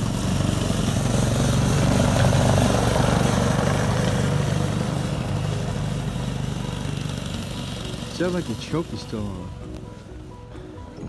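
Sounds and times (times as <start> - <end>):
snowmobile engine passing: 0.0 - 10.5.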